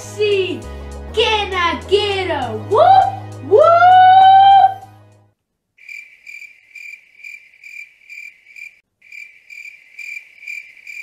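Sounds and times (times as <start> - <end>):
crickets chirping: 5.8 - 11.0.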